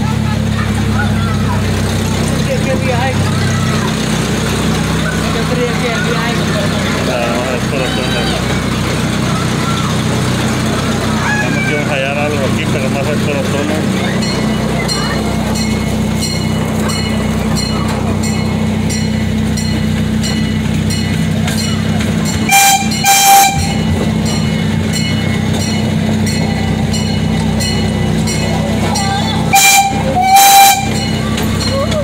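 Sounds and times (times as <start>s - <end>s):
small train engine humming: 0.0s - 32.0s
wheels ticking over rail joints: 0.0s - 32.0s
train horn blasts: 22.4s - 24.3s, 29.4s - 31.1s.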